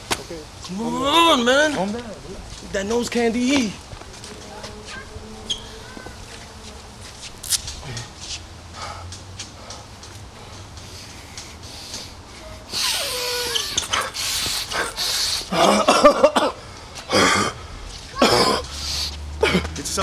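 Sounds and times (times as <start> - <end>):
drawn-out vocal noises: 2.1 - 20.0
man sniffing hard: 10.5 - 15.8, 18.4 - 19.3.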